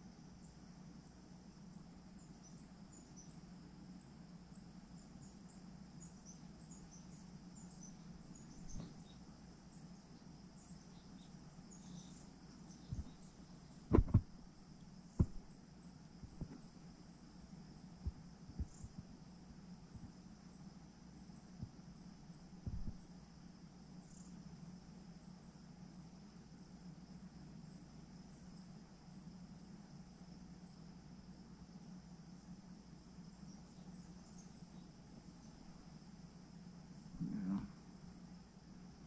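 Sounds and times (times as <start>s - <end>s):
insects chirping: 0.0s - 39.0s
low steady hum: 0.0s - 39.0s
dull knocks: 13.9s - 14.3s, 15.2s - 15.4s.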